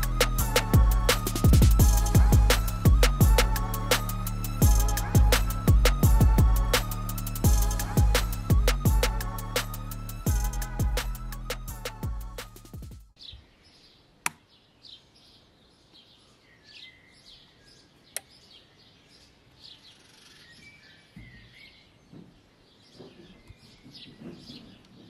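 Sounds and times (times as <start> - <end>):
birds chirping: 13.2 - 25.0
sharp clicks: 18.1 - 18.3.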